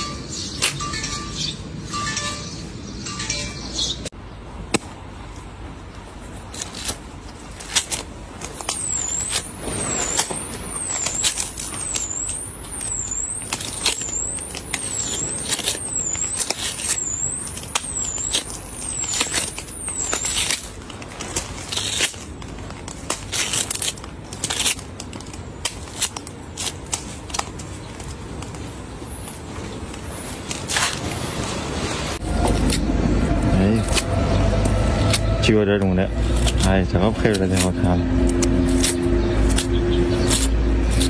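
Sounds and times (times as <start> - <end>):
watermelon cracking and crunching: 6.3 - 31.4, 36.2 - 41.0.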